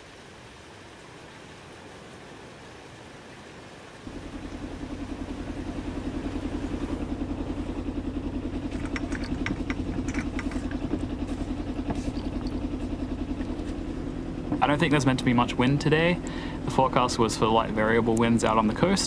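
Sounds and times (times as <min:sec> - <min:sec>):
boat engine idling: 0:04.1 - 0:19.0
anchor gear clicking: 0:08.6 - 0:13.6.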